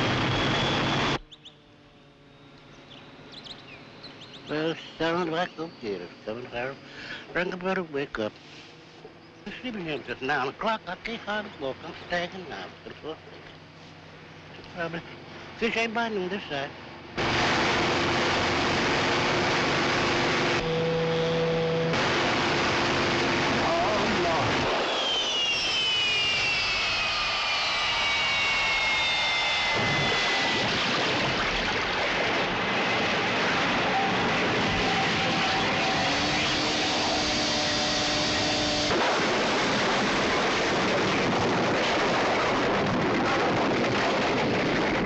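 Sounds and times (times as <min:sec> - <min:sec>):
second boat engine hum: 0:00.0 - 0:24.3, 0:32.2 - 0:39.2
speedboat engine at full throttle: 0:17.2 - 0:25.2, 0:30.0 - 0:44.8
boat crashing through wooden shack: 0:38.8 - 0:42.9.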